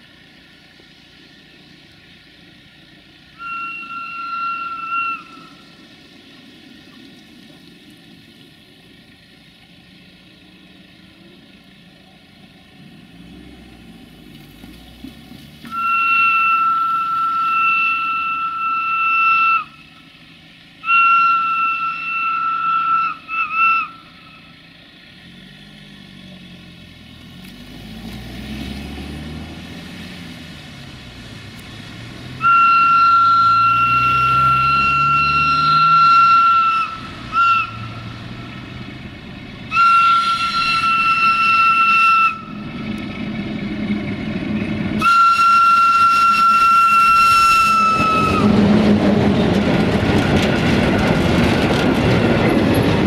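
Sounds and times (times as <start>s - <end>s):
diesel engine drone: 0.0s - 53.0s
freight wagons rolling by: 0.0s - 53.0s
locomotive whistle blasts: 3.3s - 5.8s, 15.6s - 20.0s, 20.8s - 24.5s, 32.4s - 38.2s, 39.7s - 42.8s, 45.0s - 48.6s
wheels clacking over rail joints: 30.7s - 53.0s.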